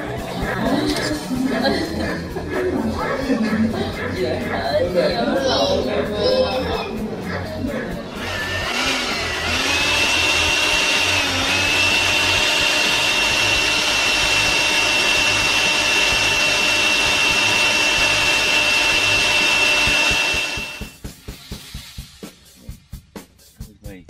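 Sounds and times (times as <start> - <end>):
leaf blower running: 8.1 - 21.0.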